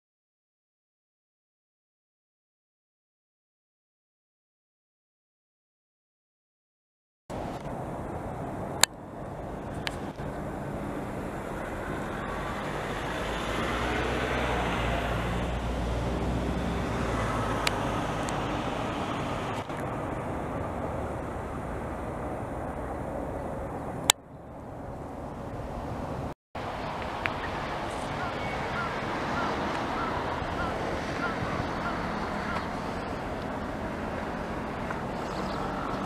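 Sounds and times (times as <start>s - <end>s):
background traffic noise: 7.3s - 36.0s
vehicle engine hum: 7.3s - 36.0s.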